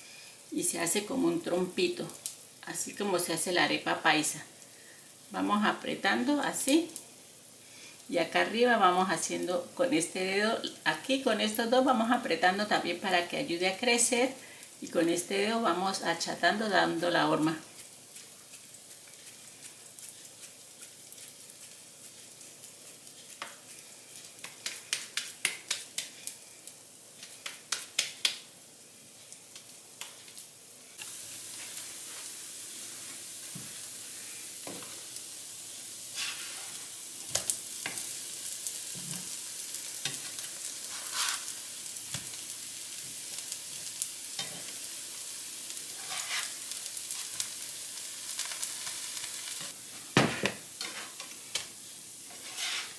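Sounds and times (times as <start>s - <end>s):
food sizzling in oil: 0.0s - 52.9s
hands patting dough: 24.4s - 26.2s, 27.2s - 28.5s
spatula clicks and scrapes: 24.4s - 26.4s.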